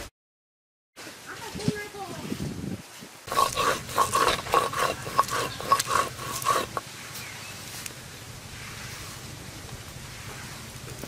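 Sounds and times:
stone grinding chilies: 3.3 - 6.8.

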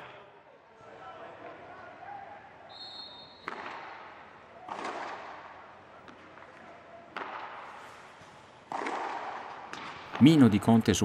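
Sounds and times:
ball hit with rackets: 3.4 - 6.5, 7.1 - 8.0, 8.6 - 10.3.

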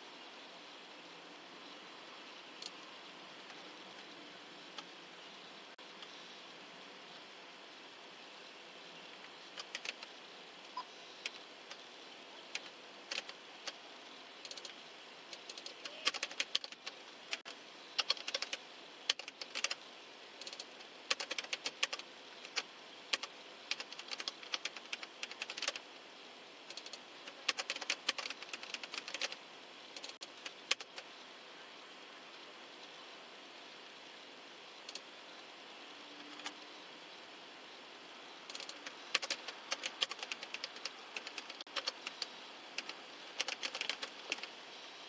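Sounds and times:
faint steady hiss: 0.0 - 45.0
laptop keyboard typing: 9.6 - 10.1, 12.5 - 13.8, 14.4 - 19.8, 20.4 - 25.8, 26.7 - 29.4, 30.0 - 31.0, 36.2 - 36.6, 38.5 - 44.5.

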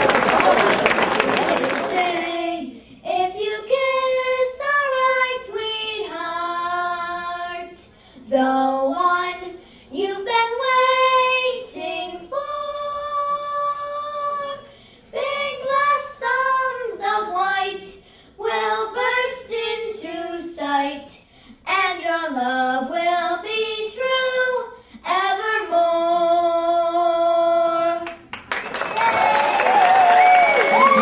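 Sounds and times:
applause and cheering: 0.0 - 2.3, 28.3 - 31.0
girls singing unaccompanied: 1.8 - 28.2.

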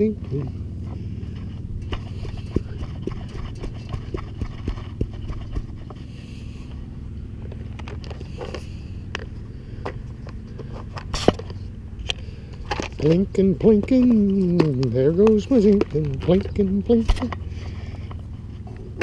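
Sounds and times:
steady low rumble: 0.0 - 19.0
light handling clicks and knocks: 7.4 - 19.0.

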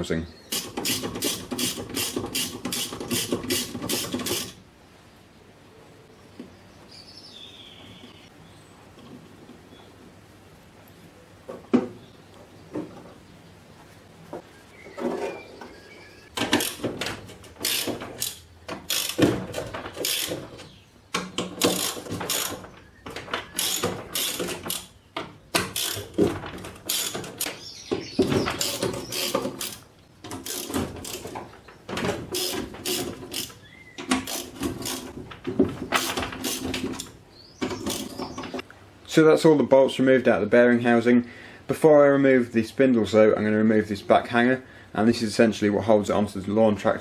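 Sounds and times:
metal knocking and scraping: 0.5 - 4.6, 16.3 - 38.6
socket ratchet clicking: 0.5 - 4.6, 17.6 - 19.2, 20.0 - 20.4, 21.6 - 22.6, 23.6 - 24.9, 26.9 - 27.5, 32.3 - 33.6.

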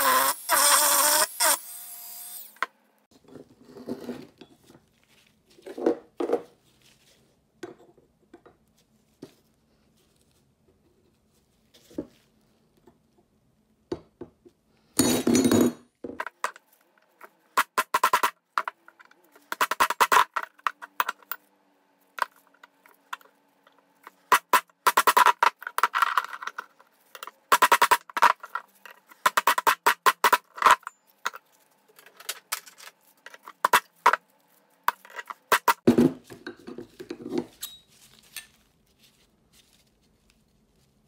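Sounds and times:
rotary tool grinding steel: 0.0 - 2.7.

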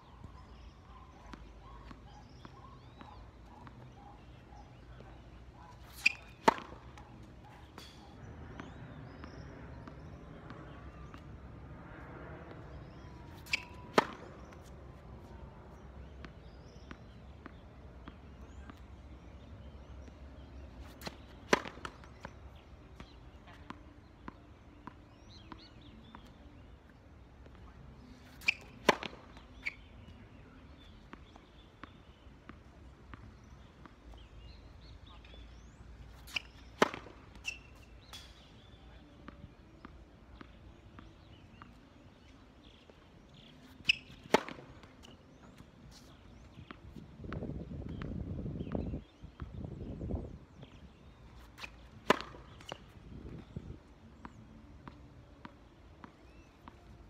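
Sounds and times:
tennis balls bouncing: 0.1 - 57.0
tennis racket hitting ball: 5.8 - 7.0, 12.8 - 14.6, 20.8 - 22.3, 28.3 - 29.8, 36.2 - 38.3, 43.4 - 45.2, 51.5 - 52.9.

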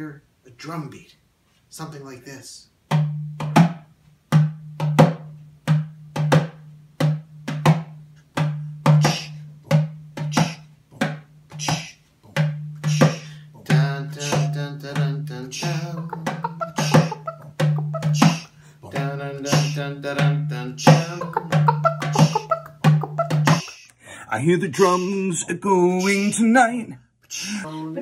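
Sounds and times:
drum rim slaps: 2.9 - 23.8
goblet drum bass strokes: 2.9 - 23.8.

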